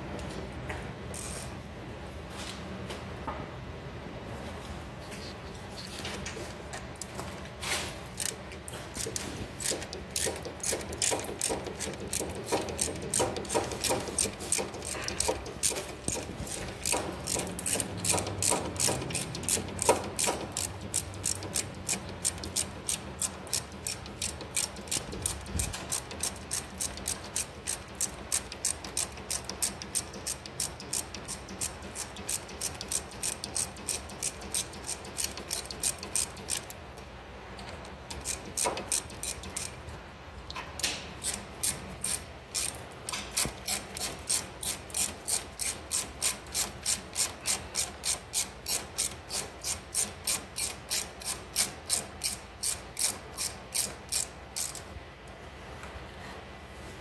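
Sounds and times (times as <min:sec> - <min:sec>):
ratchet wrench clicking: 0:08.2 - 0:08.4, 0:09.0 - 0:36.8, 0:38.1 - 0:39.8, 0:40.8 - 0:54.9.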